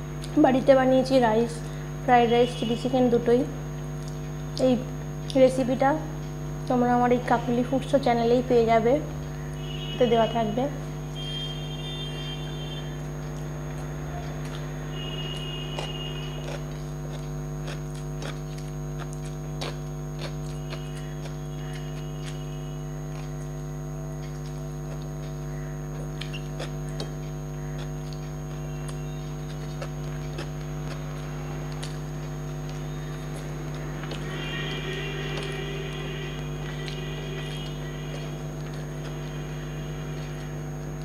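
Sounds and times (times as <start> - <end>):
electrical hum: 0.0 - 41.0
chewing and mouth clicks: 3.8 - 5.6, 11.2 - 41.0.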